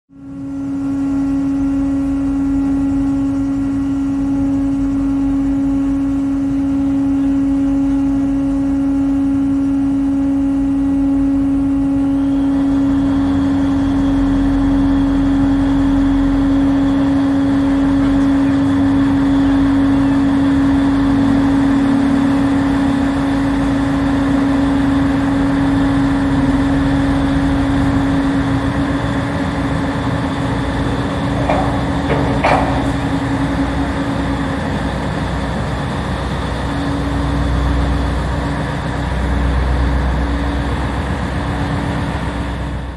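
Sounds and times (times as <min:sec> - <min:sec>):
ship engines humming: 0:00.1 - 0:42.9
broad rushing noise: 0:17.3 - 0:36.6.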